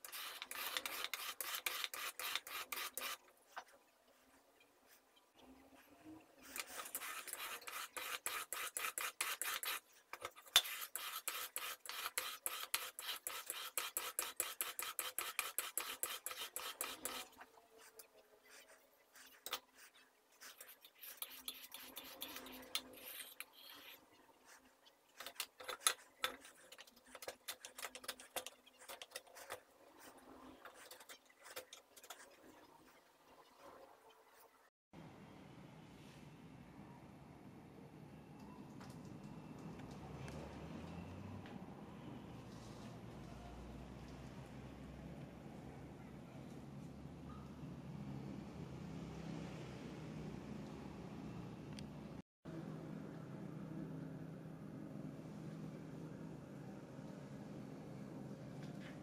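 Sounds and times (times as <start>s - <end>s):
chisel rasping on sharpening stone: 6.6s - 9.8s, 10.5s - 17.3s, 20.5s - 24.0s.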